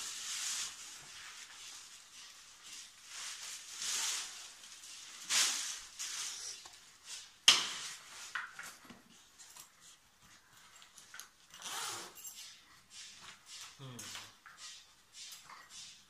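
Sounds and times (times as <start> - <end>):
plastic wrapping rustling: 0.0 - 12.4.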